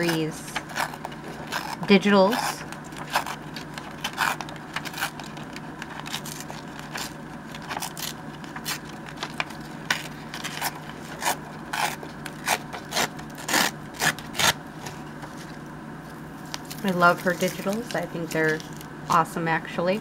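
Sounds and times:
paper tearing: 0:00.0 - 0:14.6
paper rustling: 0:02.7 - 0:12.9, 0:16.4 - 0:18.9.

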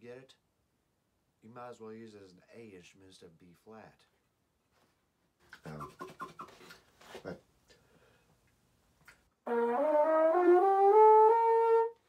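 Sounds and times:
trombone note: 0:09.4 - 0:11.9.

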